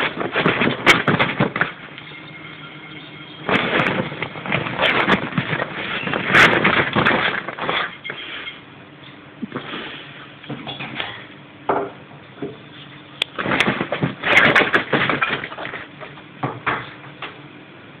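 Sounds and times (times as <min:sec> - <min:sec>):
plastic inflatable crinkling: 0:00.0 - 0:02.0, 0:03.4 - 0:08.5, 0:13.3 - 0:16.1.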